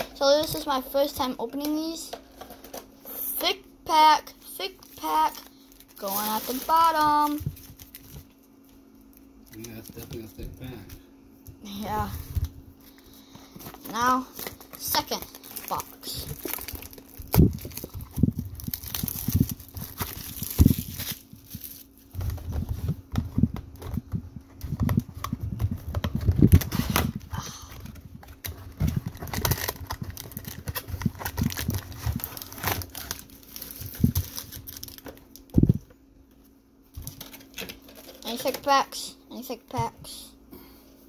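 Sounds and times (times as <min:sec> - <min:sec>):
plastic wrap crinkling and tearing: 0:04.7 - 0:10.4, 0:13.6 - 0:22.9, 0:24.6 - 0:35.6.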